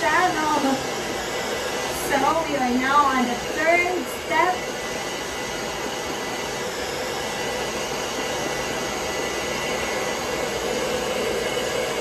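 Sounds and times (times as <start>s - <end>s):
hair dryer running: 0.0s - 12.0s.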